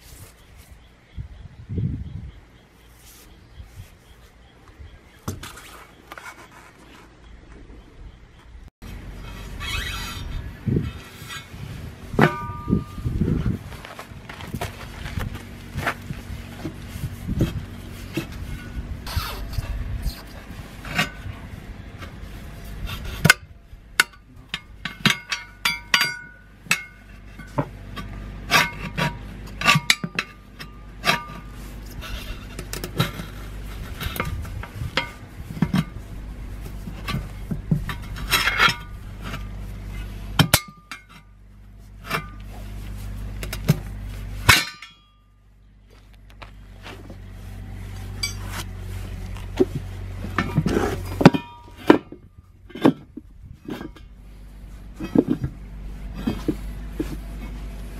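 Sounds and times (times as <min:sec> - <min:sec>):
metal rim and tire lever clanking: 0:09.2 - 0:13.6, 0:17.4 - 0:21.4, 0:22.8 - 0:41.4, 0:42.0 - 0:42.6, 0:43.4 - 0:45.4, 0:48.0 - 0:57.6.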